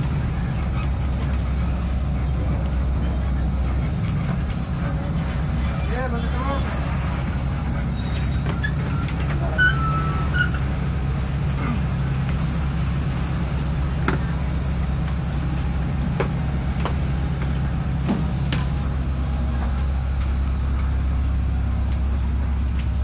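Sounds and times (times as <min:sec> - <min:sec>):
bus engine droning: 0:00.0 - 0:23.0
brief squeaks: 0:07.9 - 0:10.6.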